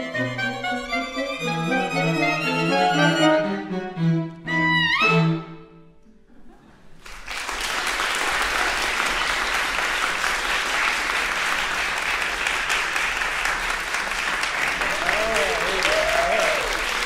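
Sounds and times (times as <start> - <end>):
chamber ensemble playing: 0.0 - 5.9
audience applause: 7.0 - 17.0.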